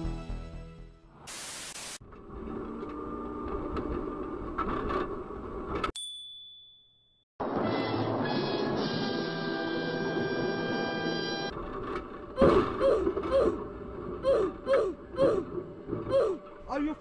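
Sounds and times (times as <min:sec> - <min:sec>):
music: 0:00.0 - 0:01.2, 0:07.4 - 0:11.5
static hiss: 0:01.3 - 0:02.0
tram running rumble: 0:07.4 - 0:17.0.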